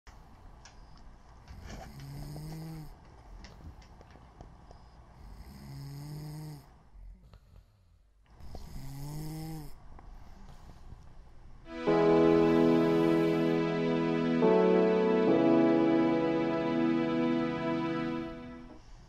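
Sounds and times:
person imitating snoring: 5.4s - 6.7s, 8.6s - 9.8s.

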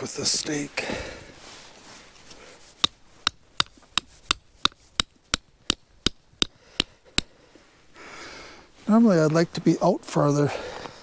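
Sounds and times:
hammer striking tent stake: 2.8s - 7.3s.

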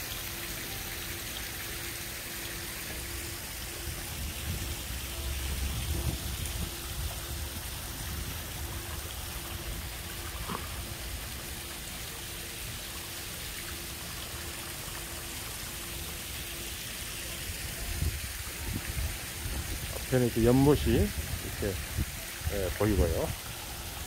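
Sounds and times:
running water: 0.0s - 24.0s
wind on microphone: 5.5s - 8.8s, 17.8s - 20.0s, 20.9s - 23.1s.

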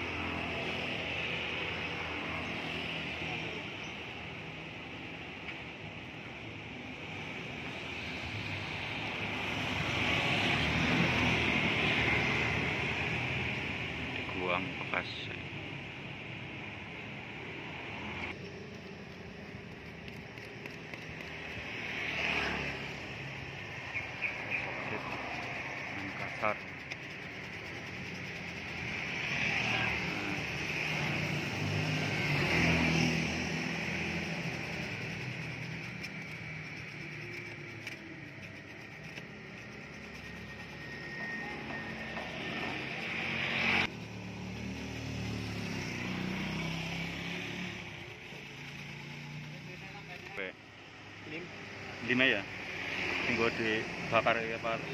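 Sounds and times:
street traffic noise: 0.0s - 54.9s
vehicle passing close: 21.6s - 38.1s, 39.0s - 50.5s.

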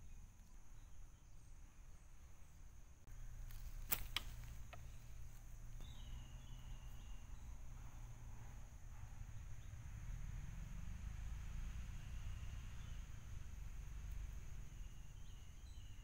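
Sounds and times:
insect drone: 0.0s - 16.0s
small ticks in leaf litter: 3.1s - 7.6s.

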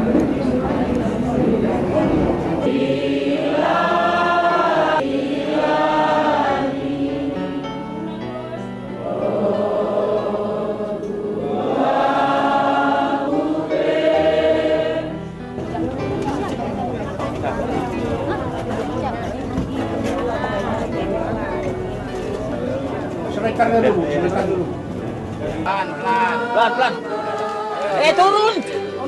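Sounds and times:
group singing a hymn: 0.0s - 15.7s, 24.9s - 29.0s.

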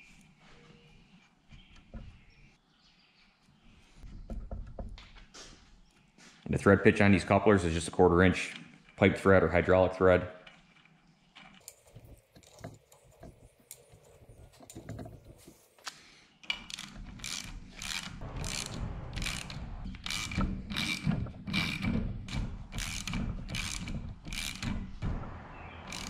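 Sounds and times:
ratchet wrench clicking: 16.6s - 21.9s, 22.7s - 24.8s.

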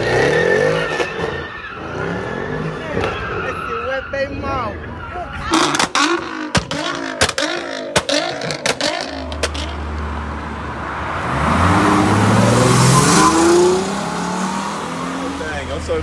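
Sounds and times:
engine blipping: 0.0s - 9.8s
car engine idling and accelerating: 0.0s - 16.0s
exhaust pops and cracks: 5.6s - 9.8s.

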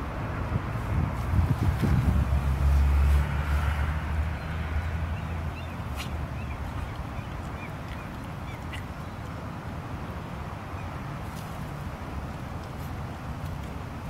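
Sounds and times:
bird chirping: 4.3s - 9.3s.

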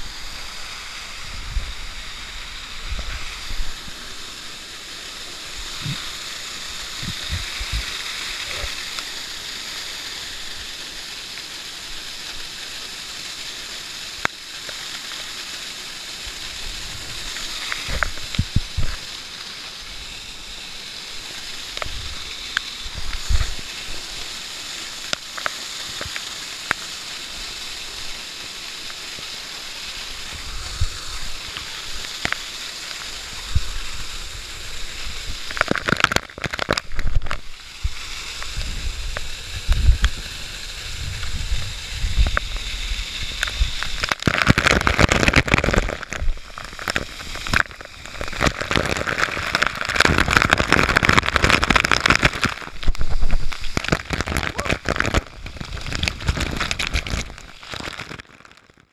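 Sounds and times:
waterfall hiss: 0.0s - 58.9s
water splashing on camera: 16.3s - 20.0s, 29.2s - 58.9s.

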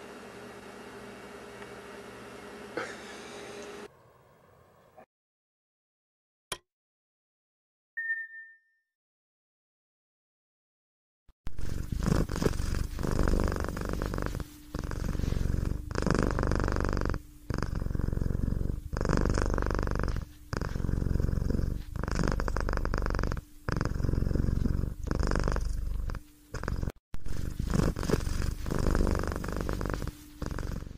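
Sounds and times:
cat purring: 11.5s - 30.9s.

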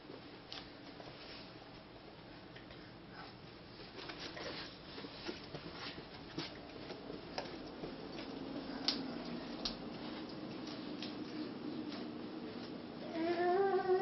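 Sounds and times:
bare feet walking on carpet: 3.8s - 13.5s
footsteps on vinyl floor: 3.8s - 14.0s.

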